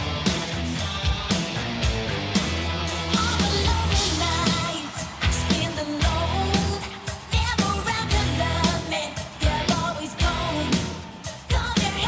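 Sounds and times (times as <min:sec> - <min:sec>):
rock band playing: 0:00.0 - 0:12.0
woman singing into microphone: 0:05.5 - 0:10.9.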